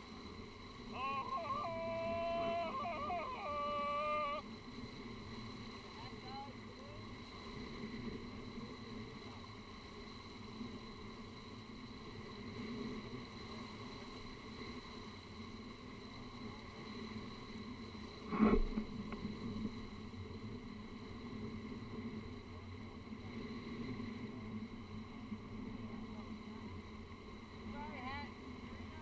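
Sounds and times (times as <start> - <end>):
outboard motor humming: 0.9 - 4.4.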